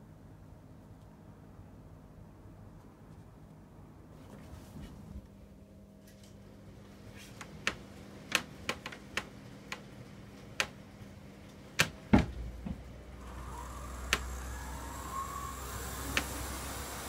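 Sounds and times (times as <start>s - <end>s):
model locomotive hum and whine: 13.0s - 17.0s.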